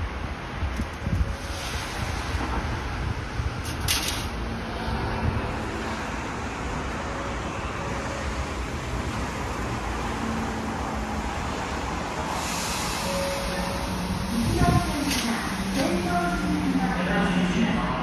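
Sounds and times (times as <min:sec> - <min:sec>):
city traffic: 0:00.0 - 0:18.0.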